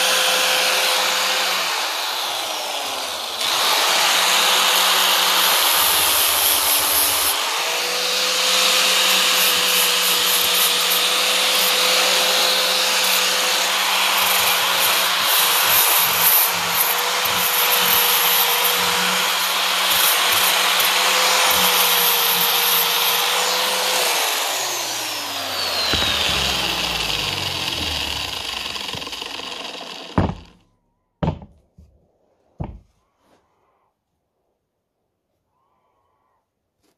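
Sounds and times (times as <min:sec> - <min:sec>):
angle grinder sanding wood: 0:00.0 - 0:30.6
sharp knocks: 0:25.7 - 0:30.6, 0:31.2 - 0:31.6.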